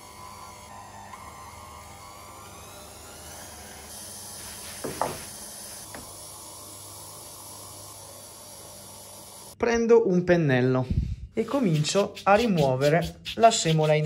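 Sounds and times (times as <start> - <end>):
pasta sheeter motor hum and whine: 0.0 - 9.6.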